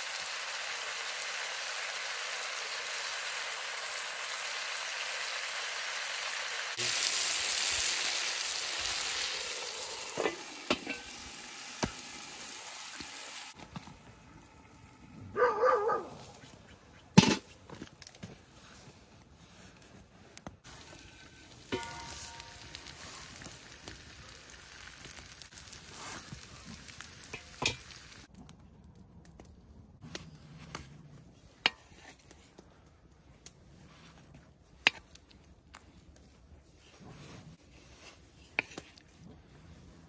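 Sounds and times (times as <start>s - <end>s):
meat sizzling in a pan: 0.0s - 13.6s, 20.8s - 28.3s.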